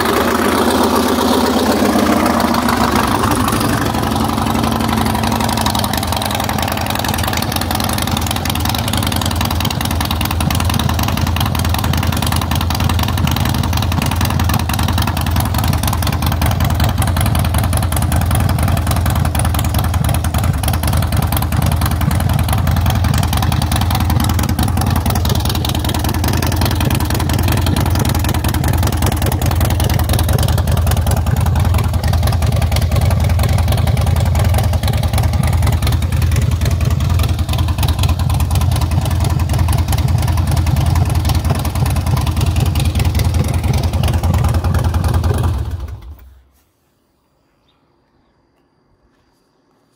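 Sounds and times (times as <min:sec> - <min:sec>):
motorcycle engine idling: 0:00.0 - 0:46.5.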